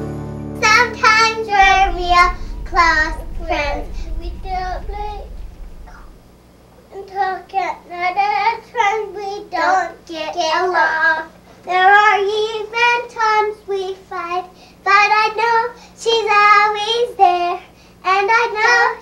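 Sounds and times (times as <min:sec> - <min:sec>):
child singing: 0:00.6 - 0:05.4.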